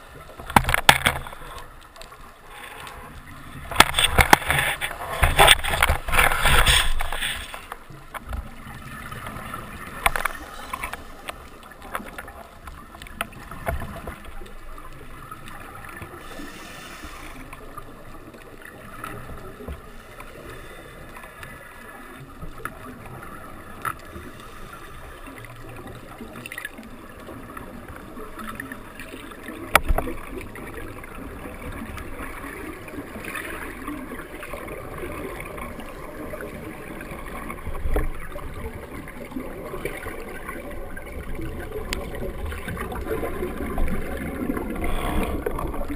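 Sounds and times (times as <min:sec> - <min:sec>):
muffled underwater wash: 0:00.0 - 0:45.9
bubbling from diving gear: 0:25.2 - 0:45.9.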